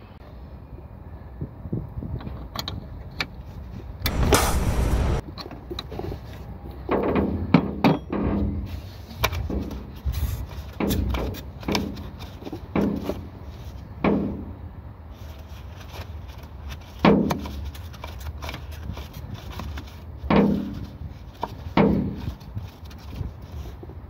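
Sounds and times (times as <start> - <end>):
metal knocks and clunks: 4.1 - 5.2
steady low rumble: 4.1 - 5.2.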